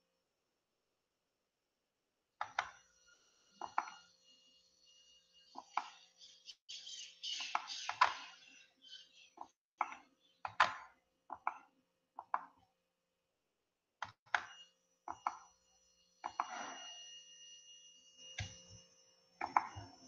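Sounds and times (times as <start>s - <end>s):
faint steady high tone: 2.4s - 6.5s, 14.3s - 20.0s.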